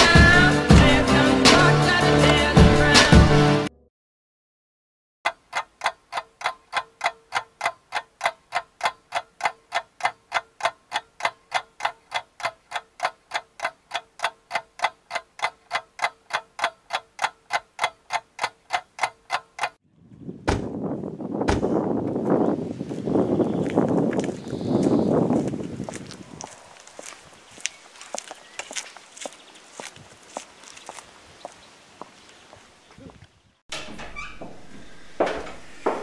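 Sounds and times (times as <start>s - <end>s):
clock ticking: 5.3s - 19.8s.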